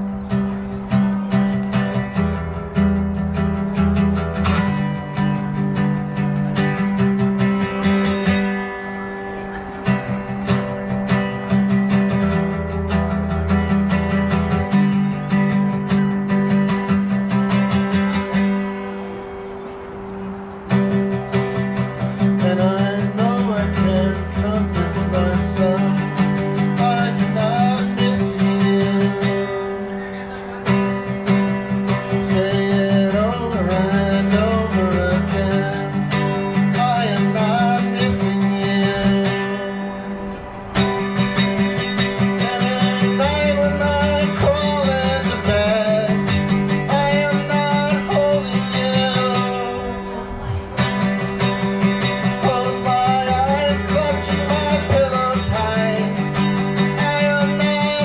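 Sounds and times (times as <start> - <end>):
guitar strumming: 0.0 - 58.0
man singing slow song: 22.0 - 30.0, 31.9 - 40.3, 42.0 - 50.6, 52.0 - 58.0.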